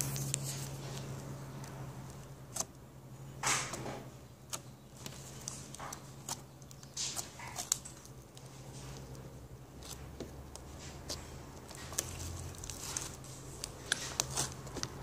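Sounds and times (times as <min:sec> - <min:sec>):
phone rustling: 0:03.5 - 0:15.0.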